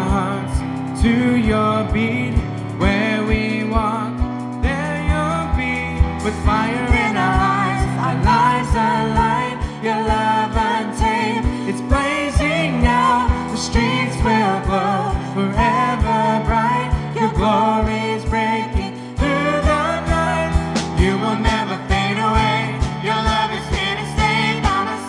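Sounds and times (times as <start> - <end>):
steady drum beat: 0.0 - 25.0
group singing worship song: 5.0 - 25.0.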